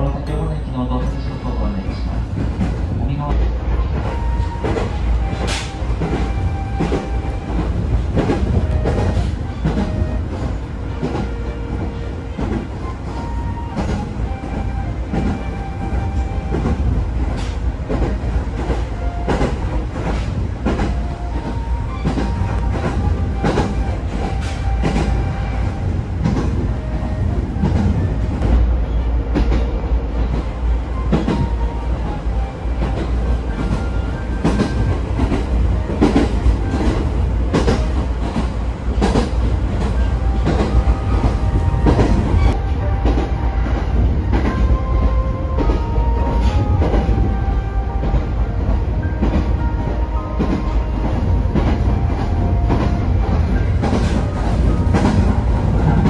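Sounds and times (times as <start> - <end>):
train interior low rumble: 0.0 - 56.0
train wheels clacking over rail joints: 2.4 - 12.7, 32.8 - 44.7, 50.4 - 56.0.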